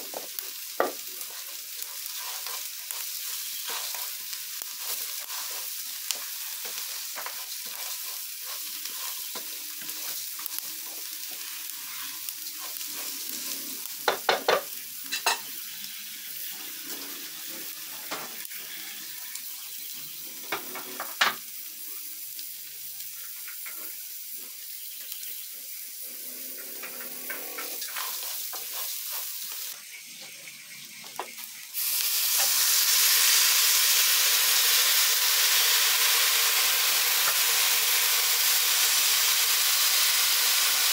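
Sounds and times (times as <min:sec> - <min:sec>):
rice sizzling in oil: 0:00.0 - 0:40.9
spoon stirring and scraping pot: 0:01.2 - 0:10.2.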